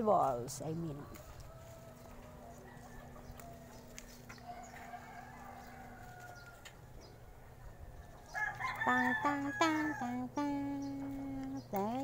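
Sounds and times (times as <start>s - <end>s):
steady low hum: 0.0s - 12.0s
faint rooster crowing: 0.9s - 10.2s.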